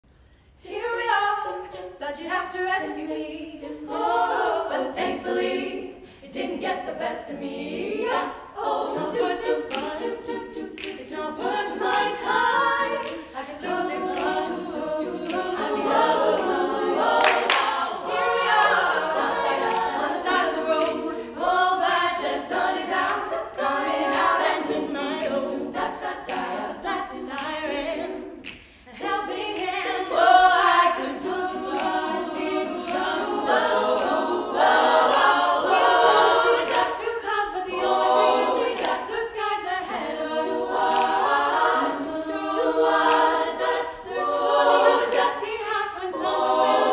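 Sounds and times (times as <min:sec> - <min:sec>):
women singing a cappella harmony: 0:00.1 - 0:46.9.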